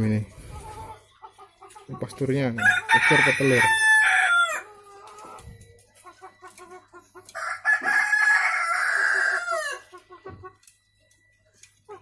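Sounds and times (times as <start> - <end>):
rooster crowing: 2.6 - 4.7, 7.4 - 9.9.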